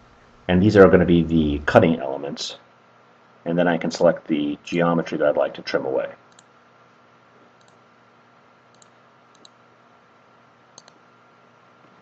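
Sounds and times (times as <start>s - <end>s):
faint steady hum: 0.0s - 12.0s
computer mouse clicks: 6.3s - 6.5s, 7.6s - 7.8s, 8.7s - 9.6s, 10.8s - 11.0s.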